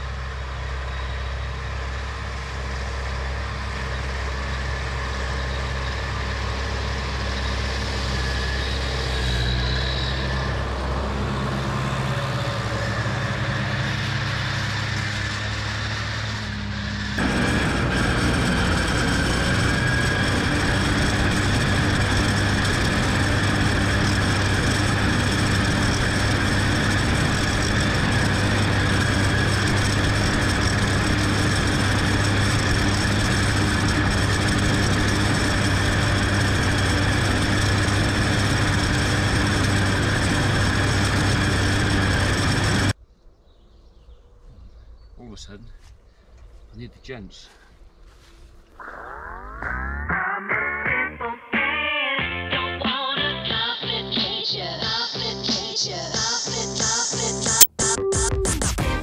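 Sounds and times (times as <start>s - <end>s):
high whine: 0.0s - 43.0s, 48.2s - 54.3s
tractor engine and mower drone: 0.0s - 43.0s, 47.3s - 57.7s.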